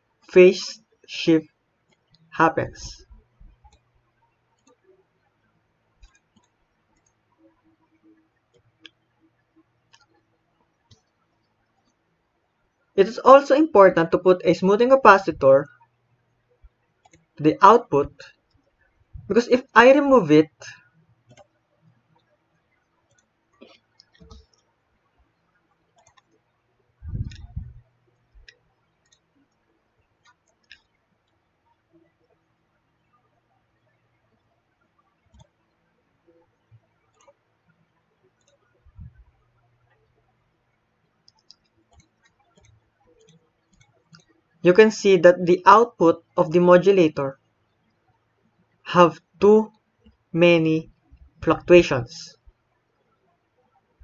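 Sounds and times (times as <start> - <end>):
small scattered clicks: 1.8 - 2.3, 3.0 - 13.0, 15.6 - 17.4, 20.8 - 44.6.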